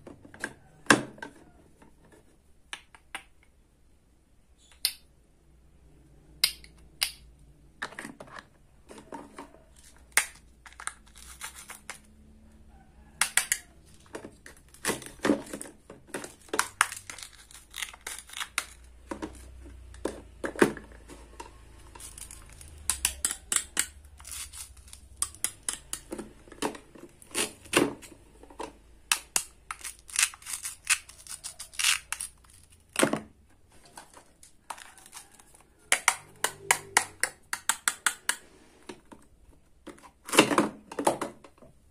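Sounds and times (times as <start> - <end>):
toy food clicks and taps: 6.4 - 7.3, 22.7 - 24.0, 35.9 - 38.4
velcro rasps: 10.9 - 12.1, 29.7 - 32.8.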